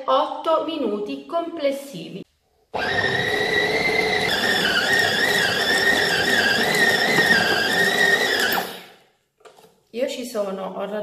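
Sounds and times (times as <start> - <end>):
food processor motor whining: 2.7 - 9.0.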